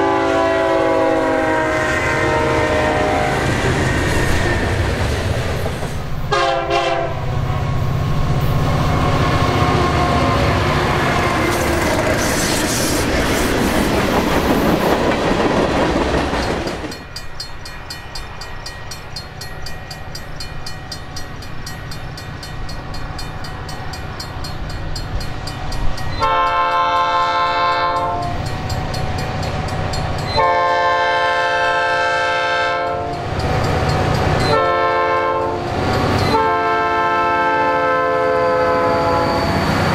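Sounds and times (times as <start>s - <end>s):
locomotive air horn: 0.0s - 3.7s, 6.3s - 7.9s, 8.7s - 11.7s, 26.2s - 28.4s, 30.3s - 33.2s, 34.4s - 39.6s
freight train rumble on rails: 0.0s - 39.9s.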